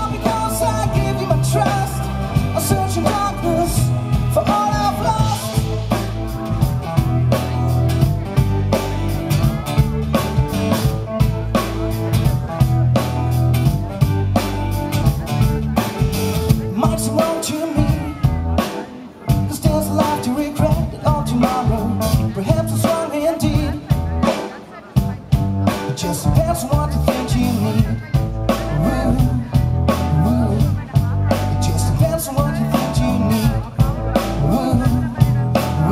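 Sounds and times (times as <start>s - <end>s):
lead vocal singing: 0.0s - 5.8s, 25.9s - 30.9s, 31.6s - 35.9s
electric bass: 0.0s - 24.4s, 25.0s - 35.9s
drum kit: 0.0s - 35.9s
keyboard: 0.0s - 35.9s.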